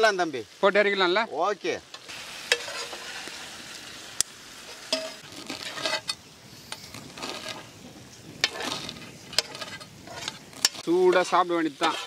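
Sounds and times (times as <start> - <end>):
faint sizzle: 0.0 - 12.0
metal spatulas scraping on griddle: 2.5 - 3.4, 4.7 - 7.7, 8.4 - 12.0.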